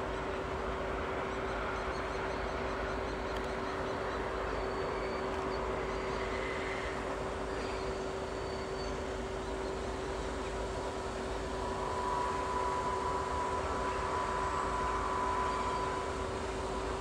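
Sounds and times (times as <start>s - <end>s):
steam locomotive hissing: 4.9s - 17.0s.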